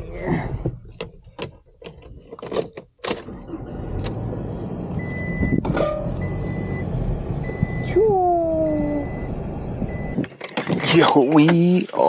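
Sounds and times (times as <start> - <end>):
truck engine running: 3.3 - 10.2
high warning chime beeping: 8.6 - 10.2.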